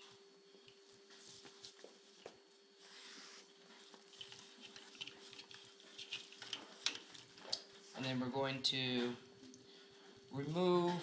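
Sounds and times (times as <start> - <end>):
faint steady hum: 0.0 - 11.0
gloved hands rustling tubing: 2.8 - 7.9.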